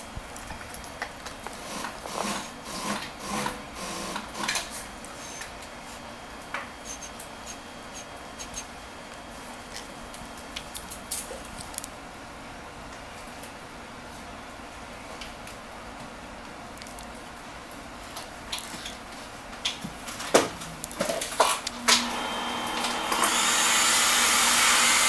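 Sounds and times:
plastic film clicks and crackles: 0.2 - 1.6, 9.8 - 12.0
cloth squeaking on glass screen: 5.2 - 5.5, 6.8 - 8.7.

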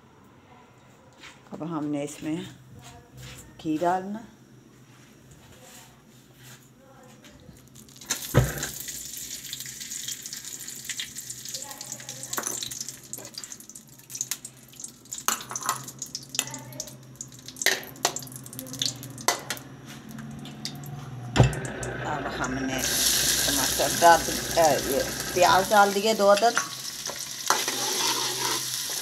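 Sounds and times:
ghee sizzling in pan: 7.6 - 21.0, 21.6 - 29.0.

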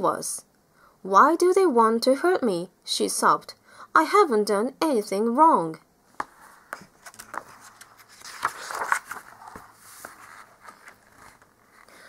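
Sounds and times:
page turning with paper rustling: 6.2 - 11.9.

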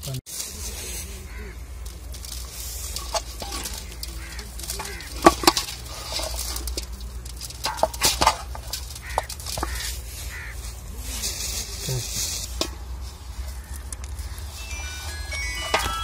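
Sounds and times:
knocks and clinks on metal pot: 15.2 - 16.0.

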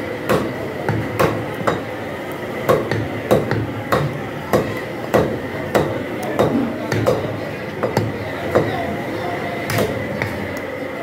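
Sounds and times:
cleavers chopping meat on wood: 0.2 - 1.9, 2.7 - 9.0, 9.7 - 10.4.

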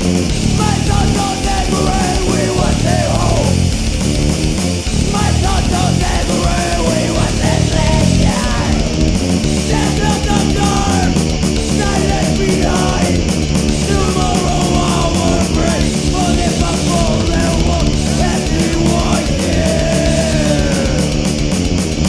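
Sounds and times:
heavy metal band playing: 0.0 - 22.0.

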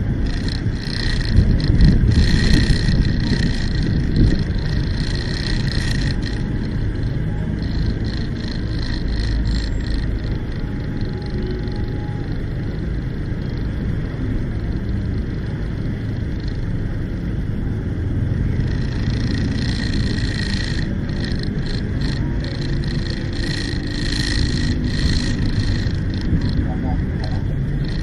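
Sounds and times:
faint steady whine: 0.0 - 28.0
vehicle engine rumble: 0.0 - 28.0.

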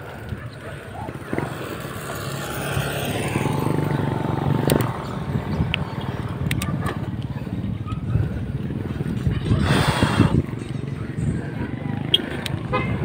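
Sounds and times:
sharp clicks: 4.6 - 5.0.

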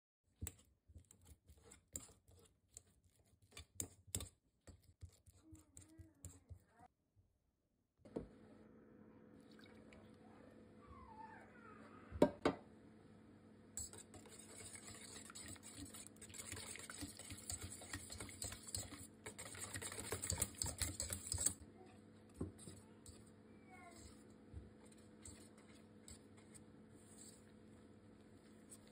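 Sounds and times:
whisk clinking in metal bowl: 13.8 - 21.6.

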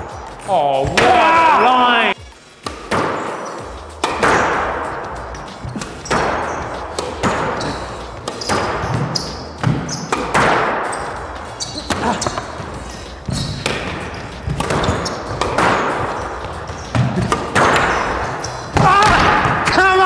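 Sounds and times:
squash ball hits echoing: 0.0 - 1.6, 2.6 - 20.0.

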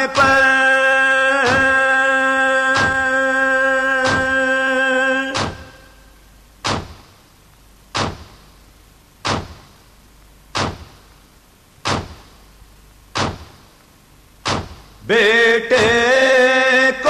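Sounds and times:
mourners slapping their chests: 1.5 - 1.8, 2.8 - 3.1, 4.0 - 4.4, 5.4 - 5.8, 11.8 - 12.4.

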